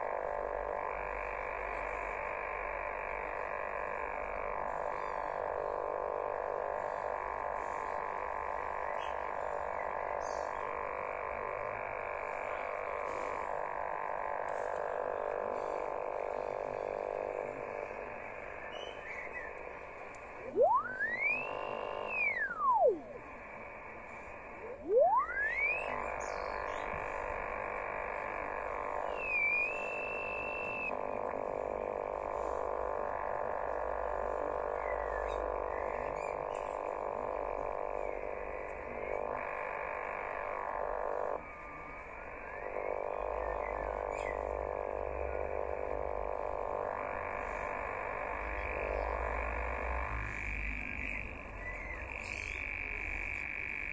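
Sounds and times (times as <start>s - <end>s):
radio interference noise: 0.0s - 53.9s
radio tuning whistle: 18.6s - 27.4s, 28.5s - 31.1s.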